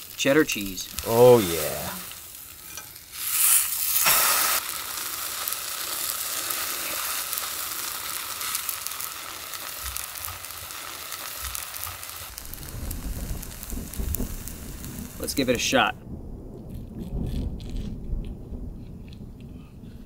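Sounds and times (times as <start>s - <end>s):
sandwich sizzling in pan: 0.0s - 15.8s.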